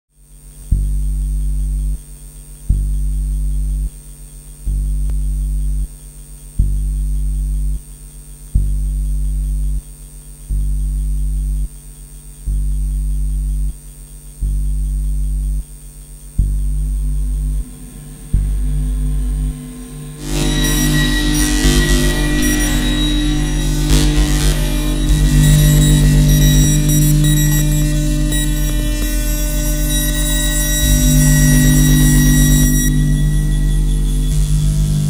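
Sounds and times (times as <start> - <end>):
pulsing electronic hum: 0.2 - 35.0
faint steady high tone: 17.3 - 35.0.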